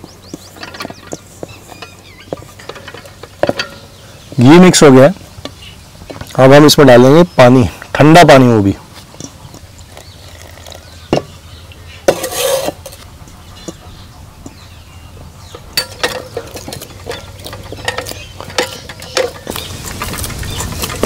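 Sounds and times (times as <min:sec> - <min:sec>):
clicks and knocks against bowl: 0:00.3 - 0:04.0, 0:15.6 - 0:21.0.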